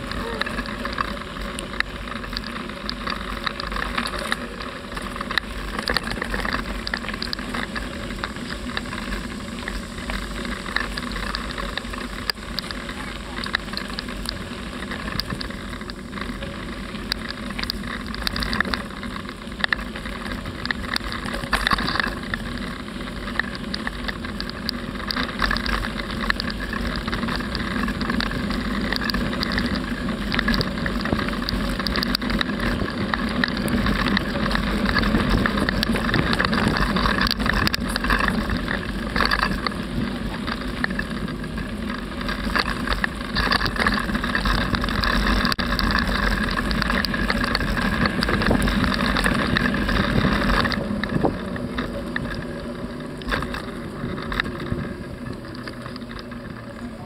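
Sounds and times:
bicycle rattling: 0:00.0 - 0:57.0
wind rushing over microphone: 0:26.2 - 0:57.0.

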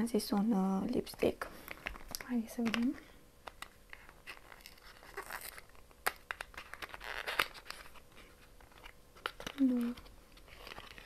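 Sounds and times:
cardboard crinkling and tearing: 0:03.9 - 0:11.0.

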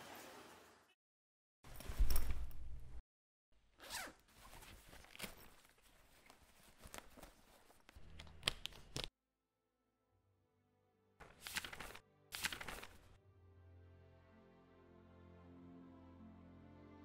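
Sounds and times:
zip-like rasps: 0:03.8 - 0:04.2
diary rustling with clicks: 0:04.5 - 0:09.1.

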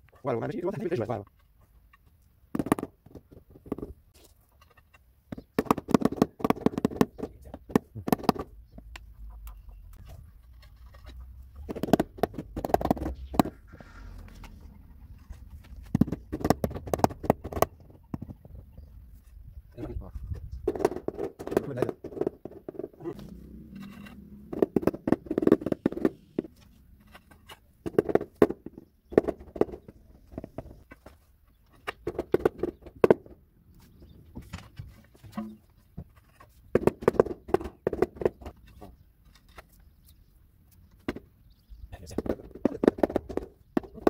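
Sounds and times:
rubber mallet tapping tiles: 0:05.3 - 0:09.0, 0:11.6 - 0:13.6, 0:15.9 - 0:18.3, 0:24.2 - 0:26.5, 0:27.8 - 0:30.8.

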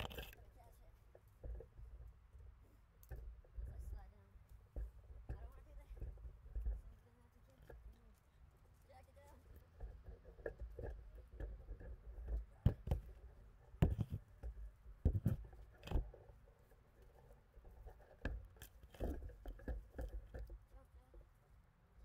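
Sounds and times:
camera handling knocks and scrapes: 0:00.0 - 0:00.4, 0:10.4 - 0:16.3, 0:17.6 - 0:20.6.

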